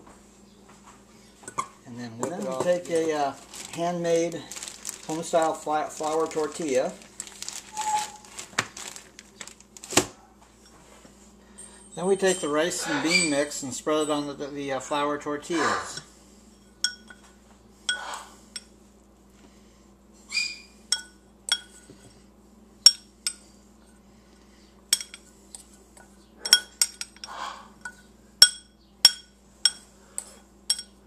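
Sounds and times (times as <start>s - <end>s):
glass bowl clinking: 16.6s - 17.3s, 20.9s - 21.9s, 22.9s - 23.4s, 26.4s - 29.9s, 30.7s - 31.0s.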